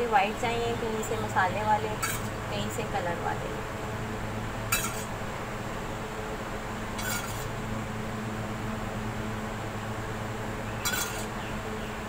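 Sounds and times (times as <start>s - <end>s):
steady low hum: 0.0s - 12.0s
kitchenware clinking: 4.8s - 5.1s.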